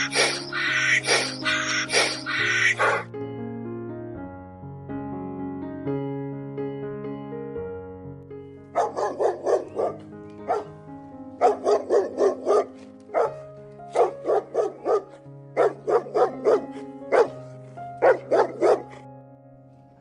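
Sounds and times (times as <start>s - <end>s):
sustained keyboard music: 0.0s - 20.0s
dog barking: 2.4s - 3.0s, 8.7s - 10.7s, 11.4s - 19.1s.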